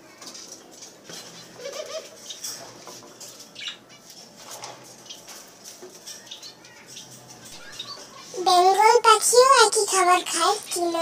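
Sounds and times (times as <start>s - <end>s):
small birds chirping: 3.4s - 4.2s, 4.9s - 8.9s, 10.0s - 11.0s.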